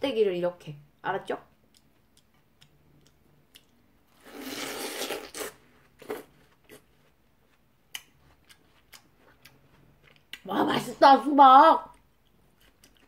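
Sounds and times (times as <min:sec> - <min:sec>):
soft chewing clicks: 0:01.5 - 0:04.0, 0:06.5 - 0:10.5, 0:11.9 - 0:13.0
crisp watermelon bite crunch: 0:02.6 - 0:06.9.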